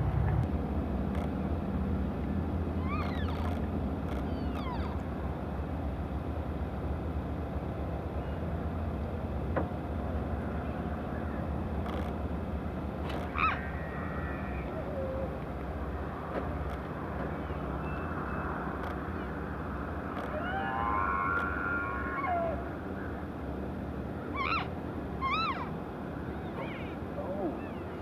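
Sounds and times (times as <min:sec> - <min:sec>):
steady low rumble: 0:00.0 - 0:28.0
elk squealing call: 0:13.3 - 0:15.3, 0:24.4 - 0:25.7.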